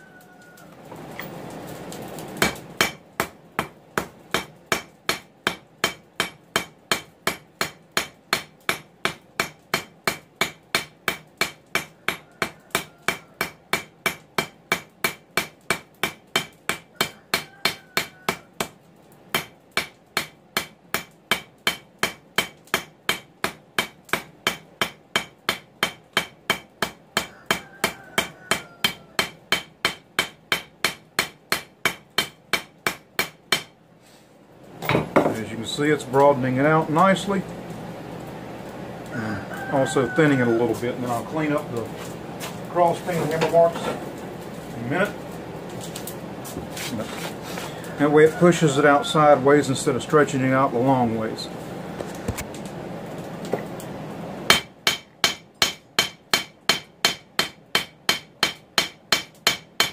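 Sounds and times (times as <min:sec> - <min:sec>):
hammer striking metal on anvil: 0:02.4 - 0:27.6, 0:28.2 - 0:33.8, 0:34.8 - 0:35.4, 0:54.5 - 0:59.9.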